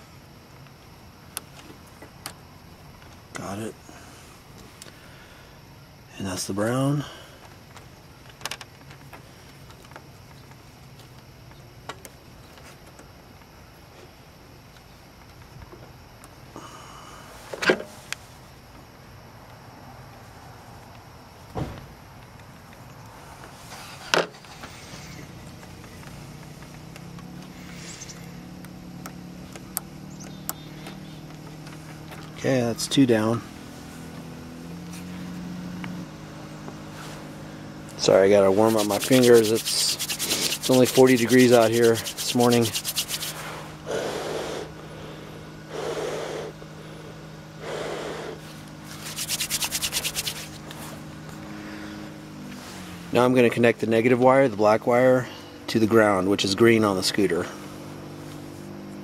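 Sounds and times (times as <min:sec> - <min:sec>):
handling thump: 0:21.5 - 0:21.9
low steady hum: 0:24.4 - 0:59.0
palms rubbing together: 0:38.0 - 0:44.8, 0:47.6 - 0:51.0
breath blown onto fingers: 0:39.0 - 0:41.0, 0:41.9 - 0:44.7.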